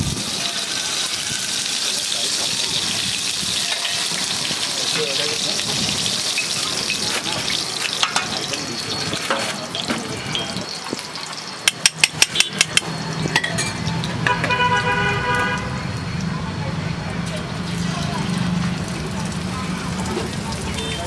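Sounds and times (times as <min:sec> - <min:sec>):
oil sizzling on griddle: 0:00.0 - 0:14.5, 0:17.1 - 0:21.0
eggs beaten in steel bowl: 0:11.6 - 0:12.9.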